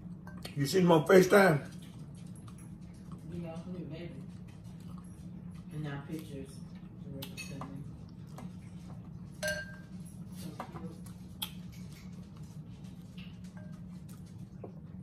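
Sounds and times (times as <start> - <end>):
spoons clinking against glass bowls: 9.4 - 10.2.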